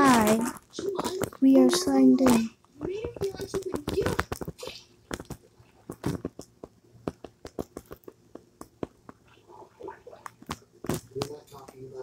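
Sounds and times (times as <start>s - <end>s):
faint low hum: 0.0s - 12.0s
small clicks and crackles: 0.0s - 12.0s.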